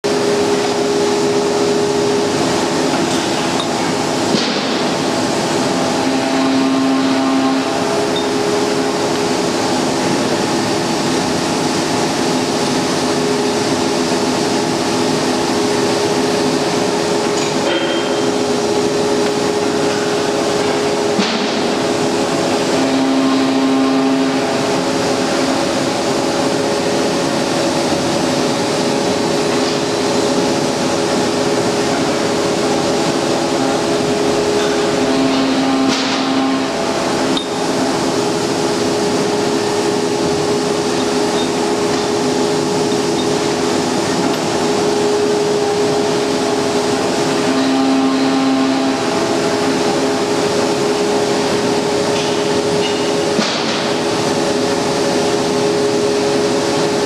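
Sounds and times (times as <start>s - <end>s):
tapping machine hum: 24.1s - 47.7s.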